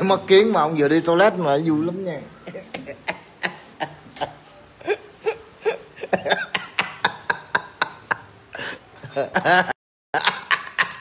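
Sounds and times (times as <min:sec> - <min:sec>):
person laughing in breathy bursts: 0:02.4 - 0:11.0.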